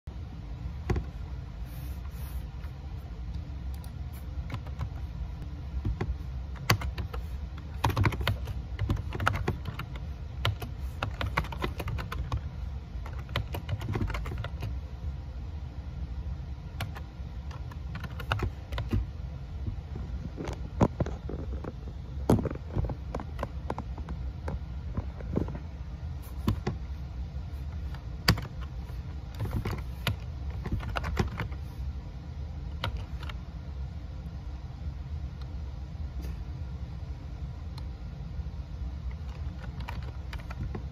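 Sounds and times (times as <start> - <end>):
low steady hum: 0.0 - 40.9
laptop keyboard typing clicks: 5.8 - 12.4, 13.0 - 14.8, 16.8 - 19.1, 28.2 - 28.7, 29.4 - 31.6, 39.1 - 40.9.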